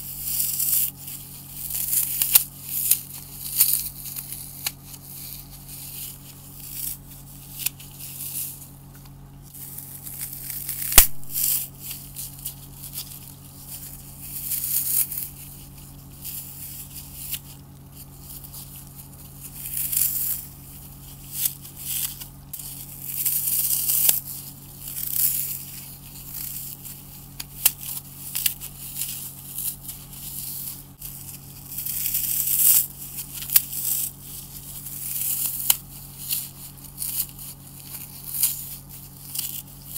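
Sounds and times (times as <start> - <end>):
floral foam crunching and crumbling: 0.0 - 39.9
foam snapping: 6.1 - 18.4, 19.3 - 39.7.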